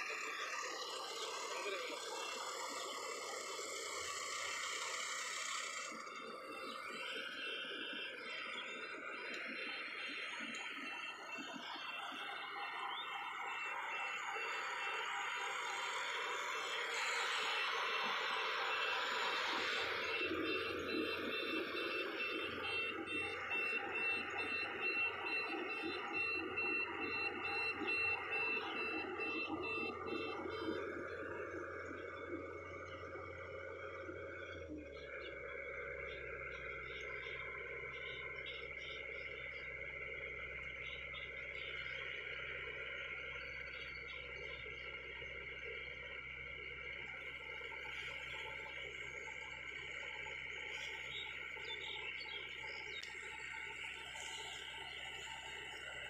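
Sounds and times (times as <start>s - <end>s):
combine harvester whirring: 0.0s - 10.8s, 11.5s - 56.0s
high electronic beeping: 0.0s - 42.0s.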